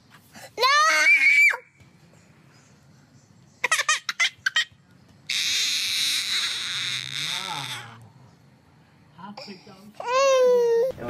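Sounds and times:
baby crying and screaming: 0.6s - 1.7s, 5.3s - 8.0s, 10.0s - 10.9s
baby squealing: 5.3s - 8.0s.

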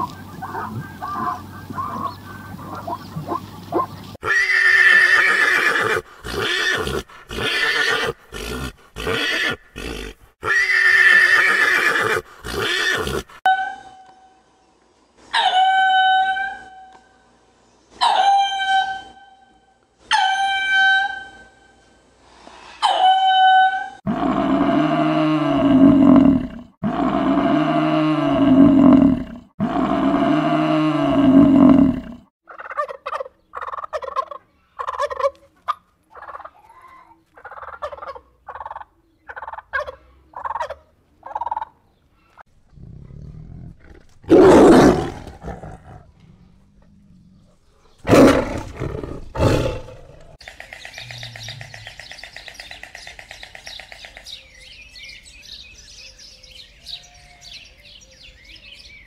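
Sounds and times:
turkey calling: 0.0s - 3.9s, 32.5s - 36.7s, 37.4s - 41.8s.

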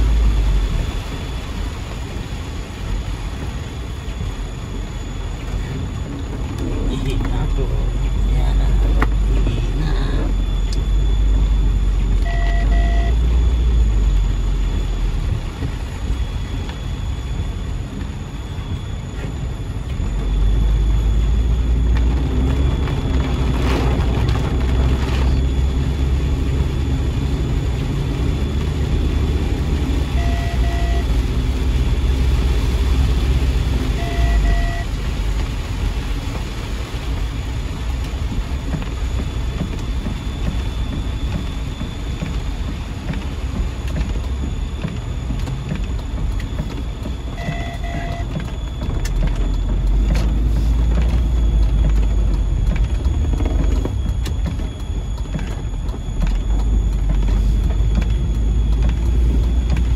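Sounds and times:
engine and tyres on wet road: 0.0s - 59.9s
rain hissing on car: 0.0s - 59.9s
short double beep: 12.2s - 13.2s, 30.2s - 31.1s, 34.0s - 34.9s, 47.3s - 48.8s.

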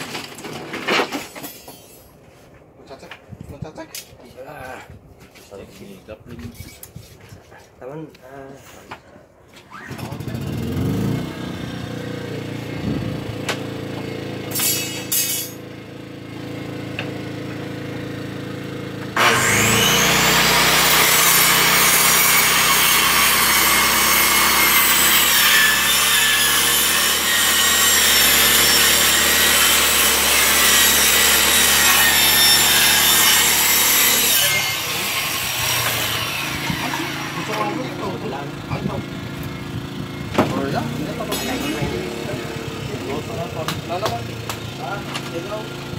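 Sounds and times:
engine hum: 10.0s - 14.6s
power saw cutting plywood: 19.0s - 39.6s, 40.3s - 45.7s.

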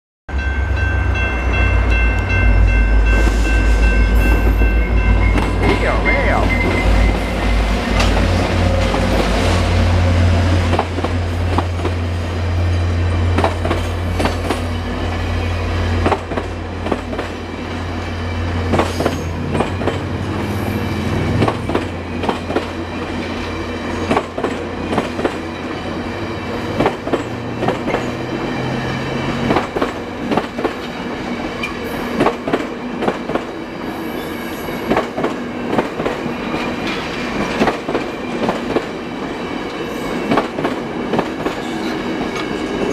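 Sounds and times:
diesel locomotive engines droning: 0.3s - 42.9s
train wheels clickety-clack: 6.4s - 9.6s, 10.4s - 12.3s, 13.2s - 15.2s, 16.0s - 17.7s, 18.6s - 42.9s.

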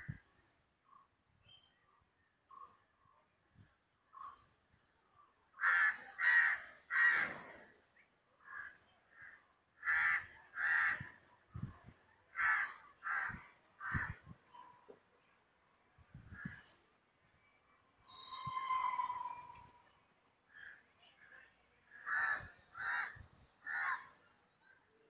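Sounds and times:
crow cawing: 5.6s - 7.3s, 9.8s - 11.1s, 12.4s - 14.2s, 22.0s - 24.1s.

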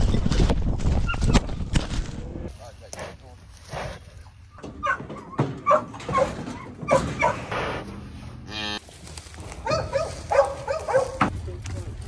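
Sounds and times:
dogs barking: 4.8s - 7.5s, 9.5s - 11.3s.

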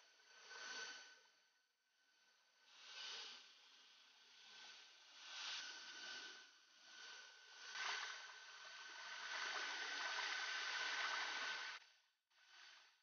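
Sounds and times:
stream running water: 8.7s - 11.8s.

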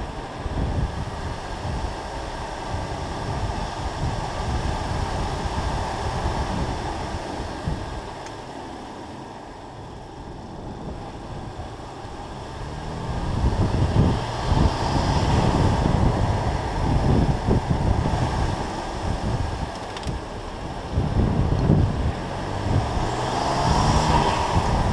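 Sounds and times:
wind buffeting on microphone: 0.0s - 9.0s, 9.8s - 24.9s
car engine: 0.0s - 24.9s
tyres on road: 0.0s - 24.9s.

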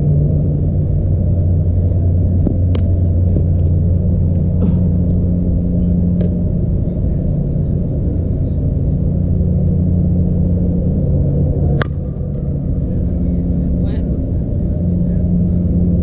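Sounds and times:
steady low hum: 0.0s - 16.0s
bat striking softball: 11.7s - 12.4s.

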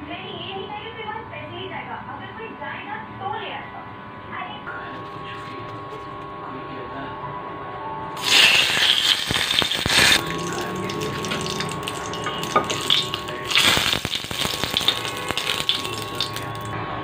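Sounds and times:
leaves sizzling in hot oil: 8.2s - 16.7s.

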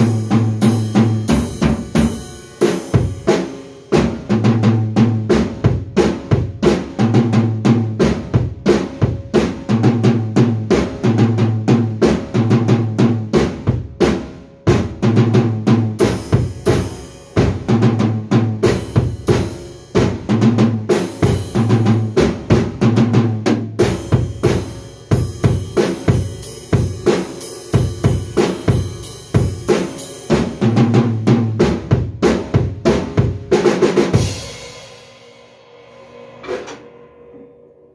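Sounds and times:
drum kit playing rock pattern: 0.0s - 37.0s
cymbal crash: 34.2s - 37.9s.

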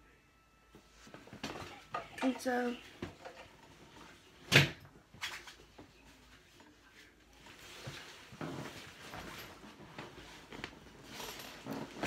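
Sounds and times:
faint rustling: 5.2s - 12.0s.

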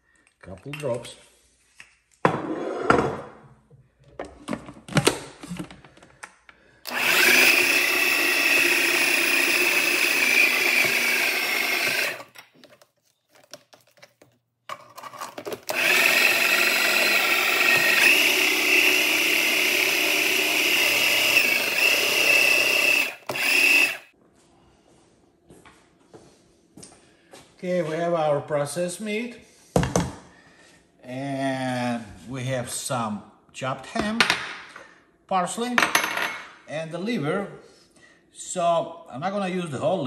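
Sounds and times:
food processor motor whine: 6.9s - 12.4s, 15.4s - 24.1s.

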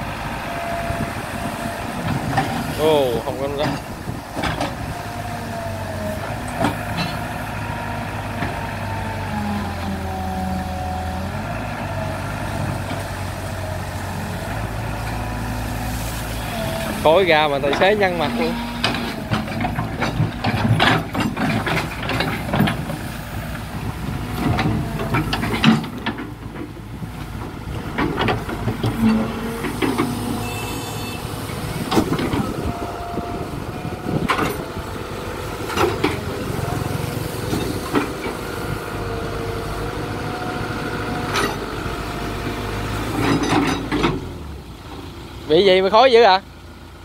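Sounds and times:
excavator diesel engine: 0.0s - 47.0s
machinery whine: 27.5s - 43.9s.

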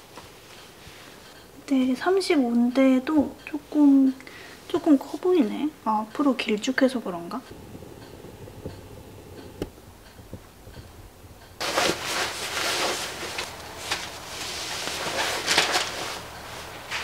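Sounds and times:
jacket fabric rustling: 11.6s - 17.0s.

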